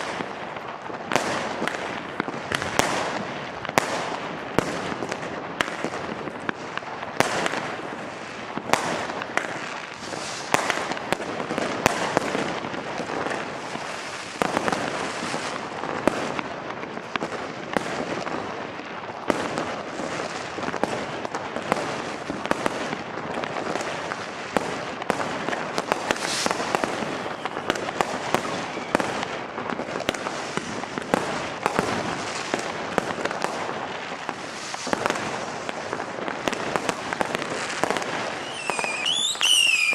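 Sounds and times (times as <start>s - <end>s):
sharp firecracker cracks: 0.0s - 7.8s, 24.6s - 39.9s.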